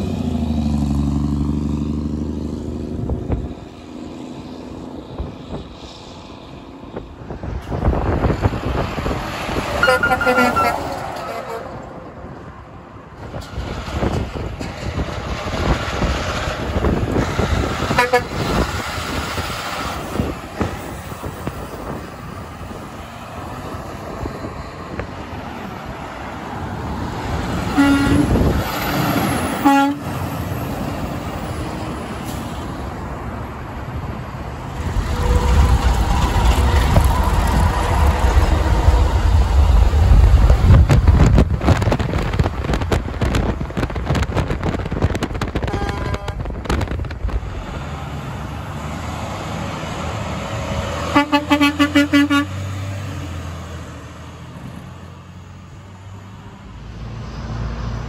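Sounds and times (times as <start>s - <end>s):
truck diesel engine rumbling: 0.0s - 58.0s
air horn short toots: 9.8s - 11.8s, 18.0s - 18.4s, 27.8s - 28.4s, 29.6s - 30.1s, 45.7s - 46.4s, 51.1s - 52.6s
truck air horn blowing: 9.8s - 11.9s, 17.9s - 18.5s, 27.7s - 28.5s, 29.5s - 30.2s, 35.0s - 35.8s, 45.7s - 46.5s, 51.1s - 52.6s.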